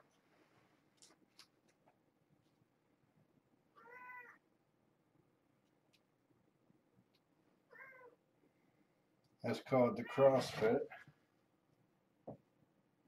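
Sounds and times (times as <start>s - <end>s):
cat meowing: 3.8s - 4.4s, 7.7s - 8.2s.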